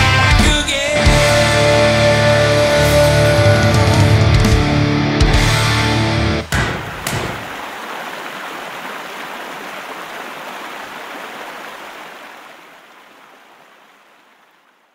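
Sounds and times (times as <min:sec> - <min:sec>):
sharp crack: 0:06.4 - 0:07.6
river water over rapids: 0:06.8 - 0:14.9.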